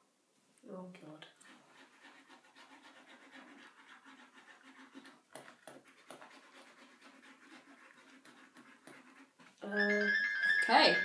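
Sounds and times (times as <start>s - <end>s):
pens scratching on paper: 1.3s - 9.9s.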